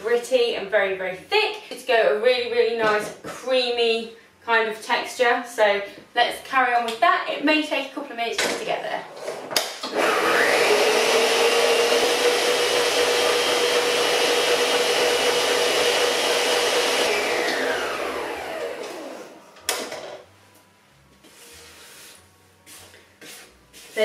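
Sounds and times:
electric stand mixer motor: 0:09.9 - 0:19.4.

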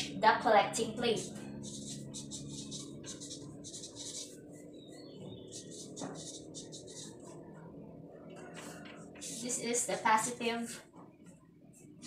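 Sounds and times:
marker pen scratching on paper: 0:01.0 - 0:04.4, 0:05.5 - 0:07.4, 0:08.6 - 0:09.6.

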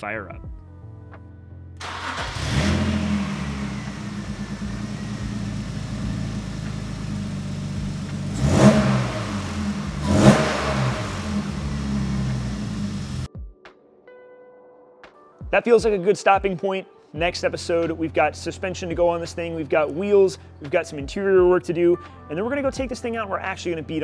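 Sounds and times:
car engine starting and idling: 0:01.8 - 0:13.3
engine throttle blips: 0:01.8 - 0:13.3.

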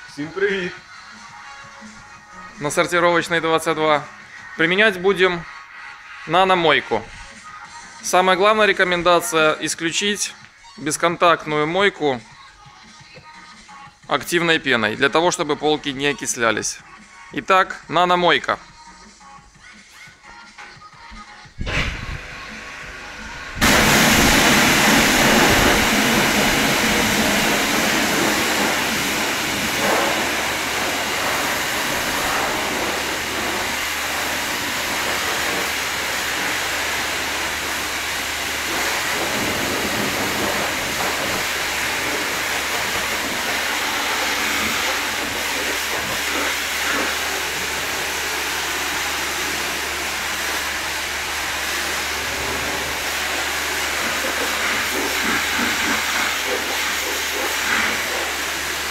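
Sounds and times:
pressure washer spraying car: 0:22.2 - 0:58.9.

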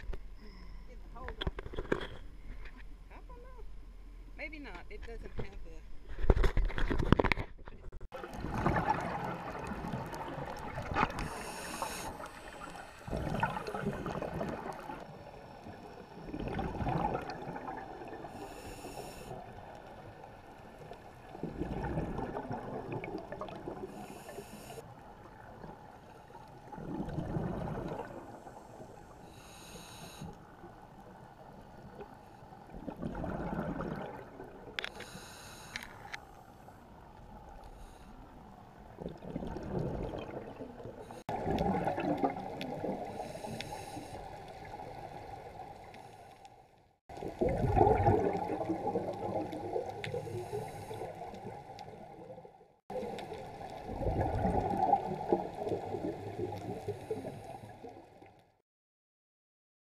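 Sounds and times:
exhaled bubbles rumbling underwater: 0:08.2 - 0:29.2, 0:30.4 - 0:34.8, 0:38.2 - 0:46.2, 0:47.1 - 0:58.4
regulator inhalation hiss: 0:11.2 - 0:13.1, 0:18.4 - 0:19.4, 0:24.0 - 0:24.8, 0:28.5 - 0:30.4, 0:34.9 - 0:36.0, 0:43.1 - 0:44.4.

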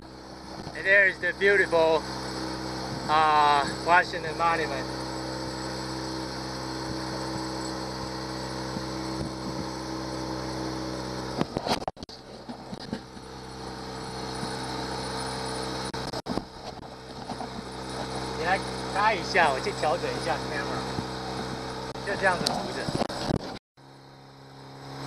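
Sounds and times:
outboard motor running: 0:00.0 - 0:25.0
motor clicks: 0:15.2 - 0:23.6.

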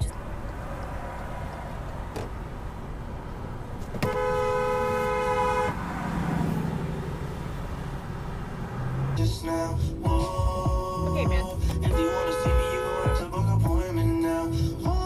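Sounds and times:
road rumble: 0:00.0 - 0:15.0
car horn blast: 0:04.0 - 0:05.8, 0:11.4 - 0:13.5.

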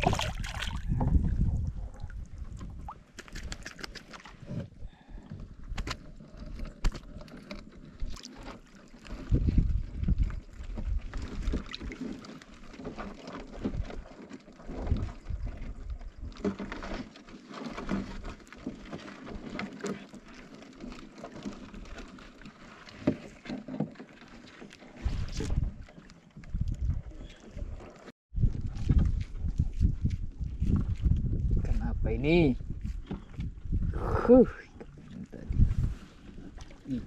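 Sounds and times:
wind buffeting microphone: 0:00.0 - 0:03.6, 0:09.2 - 0:11.5, 0:25.0 - 0:25.8, 0:26.5 - 0:37.0
water sloshing: 0:00.0 - 0:31.4, 0:32.7 - 0:37.0.

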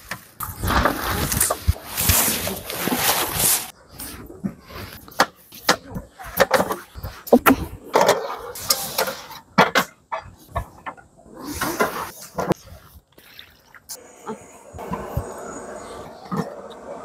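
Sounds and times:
low murmurs: 0:14.0 - 0:17.0.

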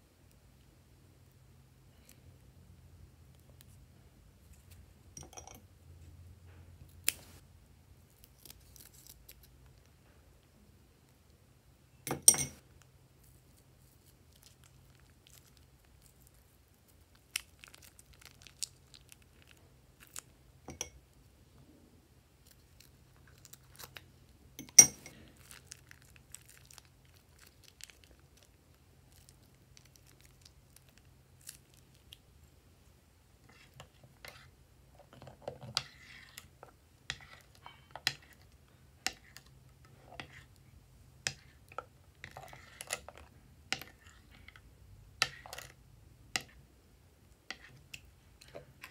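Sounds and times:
spatula stirring glue: 0:33.3 - 0:46.7, 0:47.3 - 0:48.9.

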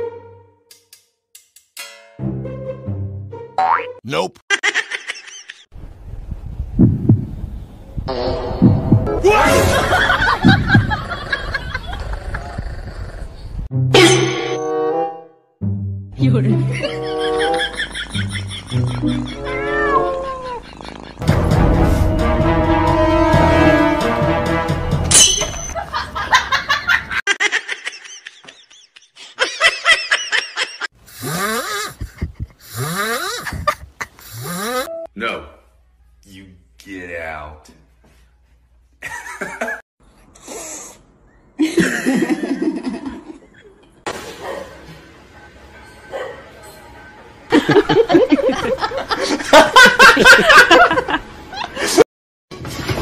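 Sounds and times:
heartbeat thumps: 0:06.3 - 0:07.5, 0:08.6 - 0:09.2, 0:10.4 - 0:11.0, 0:32.0 - 0:32.6
person laughing: 0:16.6 - 0:21.2, 0:25.8 - 0:34.9.

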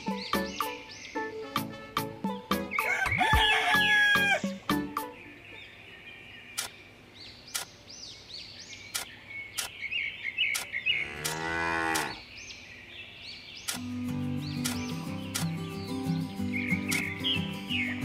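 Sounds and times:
music: 0:00.0 - 0:05.6, 0:13.8 - 0:18.0
birds chirping: 0:00.0 - 0:18.0
sharp clicks: 0:06.6 - 0:06.8, 0:07.5 - 0:07.8, 0:08.9 - 0:09.8, 0:10.5 - 0:11.4, 0:13.6 - 0:13.9, 0:14.6 - 0:15.6, 0:16.9 - 0:17.2
cow mooing: 0:10.9 - 0:12.2.

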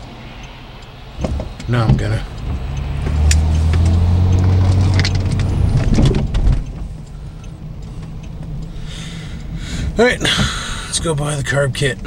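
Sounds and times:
car engine and road noise: 0:00.0 - 0:12.0
clicks: 0:01.2 - 0:08.7.

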